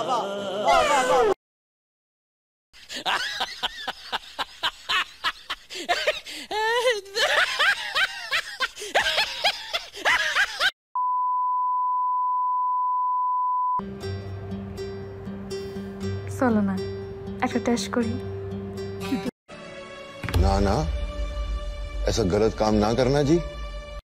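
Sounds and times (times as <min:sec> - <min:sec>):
steady test-tone beep: 0:11.0 - 0:13.8.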